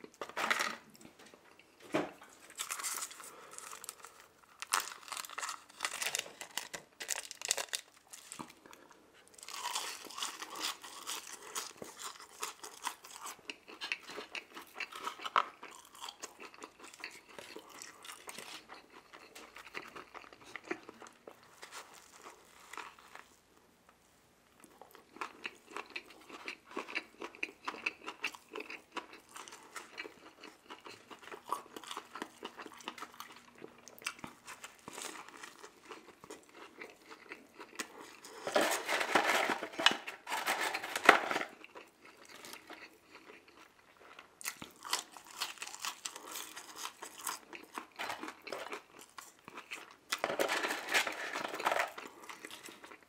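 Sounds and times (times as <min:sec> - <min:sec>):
chewing and biting food: 0:02.5 - 0:23.3, 0:24.6 - 0:38.5, 0:41.5 - 0:50.3.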